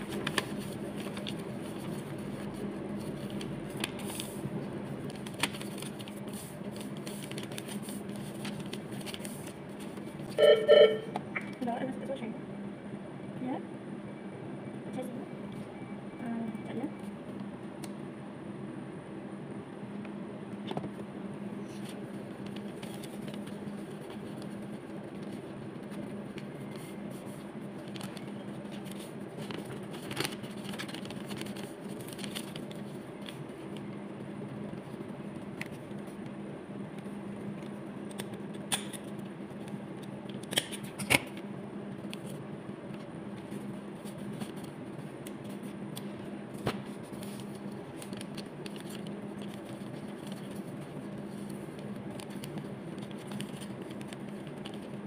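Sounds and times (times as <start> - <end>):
paper rustling: 0.0 - 4.4, 5.0 - 10.4, 21.7 - 33.8, 43.0 - 55.0
steady low hum: 0.0 - 55.0.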